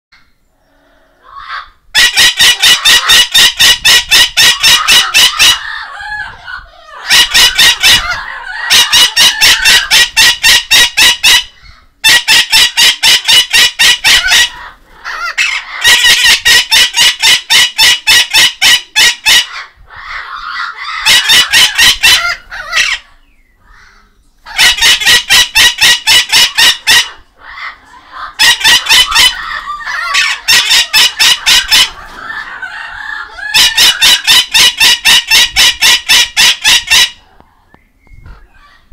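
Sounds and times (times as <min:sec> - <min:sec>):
parrot squawking: 0:01.2 - 0:37.2
soft parrot chatter: 0:20.2 - 0:32.6.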